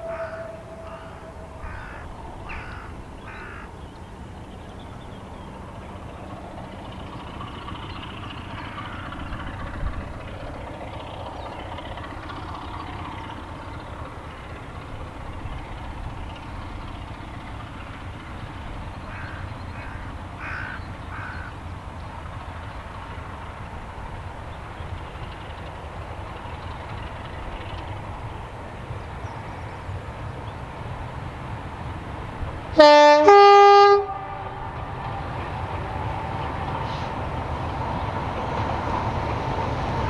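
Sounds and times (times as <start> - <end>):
crows cawing: 0.0 - 3.8, 8.6 - 9.3, 19.1 - 21.6
low steady rumble: 0.0 - 38.4.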